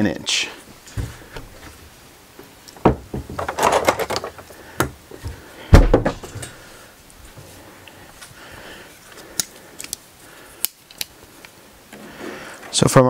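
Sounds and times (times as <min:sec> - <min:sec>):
wood and tools knocking on workbench: 0:00.9 - 0:01.6, 0:02.8 - 0:06.4.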